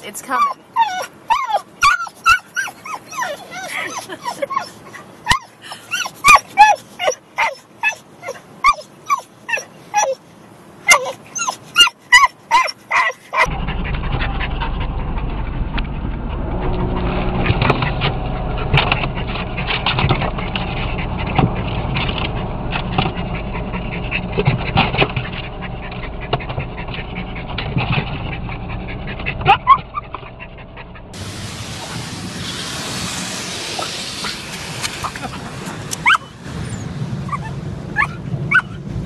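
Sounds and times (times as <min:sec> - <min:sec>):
dog whining: 0:00.4 - 0:10.2, 0:10.9 - 0:14.8, 0:17.3 - 0:31.2, 0:35.9 - 0:38.8
small dog yelping: 0:00.4 - 0:10.2, 0:10.8 - 0:13.5, 0:23.0 - 0:30.9, 0:36.0 - 0:38.8
dog barking: 0:10.9 - 0:11.2, 0:11.8 - 0:13.5, 0:29.4 - 0:30.1, 0:37.3 - 0:38.8
car wash rumbling: 0:13.4 - 0:39.0.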